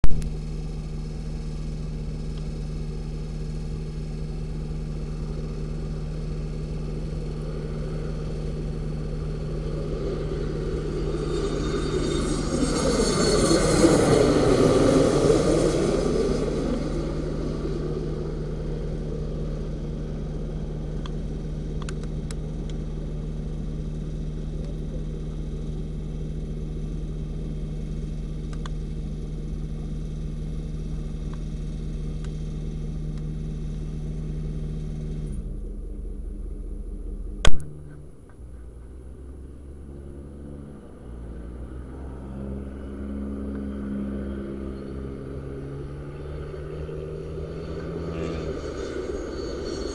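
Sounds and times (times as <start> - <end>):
distant jet approaching: 5.3 - 24.0, 35.2 - 49.9
jet engines passing overhead: 5.6 - 25.8, 38.3 - 49.9.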